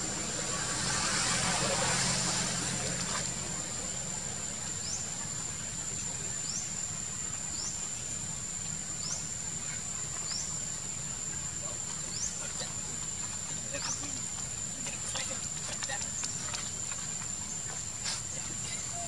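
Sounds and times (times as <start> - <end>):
rushing noise: 0.0 - 4.6
insects droning: 0.0 - 19.0.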